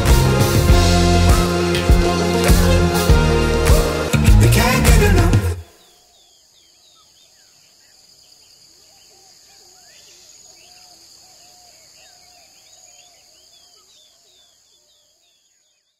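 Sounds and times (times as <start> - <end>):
birds chirping: 4.4 - 15.9
insect drone: 5.7 - 15.9.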